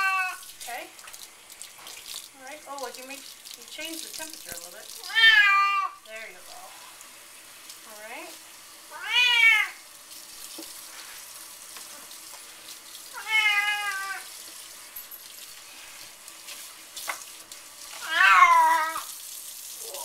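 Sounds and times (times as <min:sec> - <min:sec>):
cat meowing: 0:00.0 - 0:00.4, 0:05.0 - 0:06.0, 0:08.9 - 0:09.8, 0:13.1 - 0:14.3, 0:18.0 - 0:19.1
kitchen faucet running: 0:00.0 - 0:20.0.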